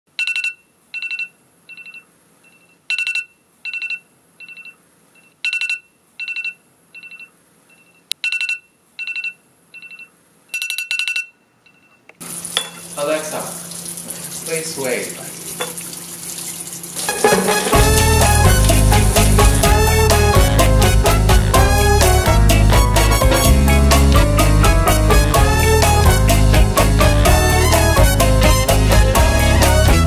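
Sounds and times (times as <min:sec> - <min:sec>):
smartphone alarm beeping: 0:00.2 - 0:12.0.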